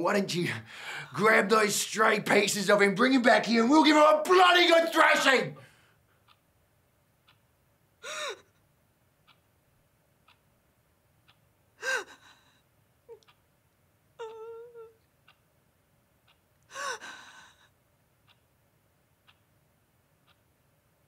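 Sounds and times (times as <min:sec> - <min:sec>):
clock ticking: 0:01.1 - 0:05.6, 0:06.2 - 0:07.6, 0:09.2 - 0:11.6, 0:13.1 - 0:13.5, 0:15.1 - 0:16.7, 0:18.2 - 0:20.8
person crying with gasping sobs: 0:08.0 - 0:08.6, 0:11.8 - 0:12.6, 0:14.2 - 0:15.0, 0:16.7 - 0:17.7.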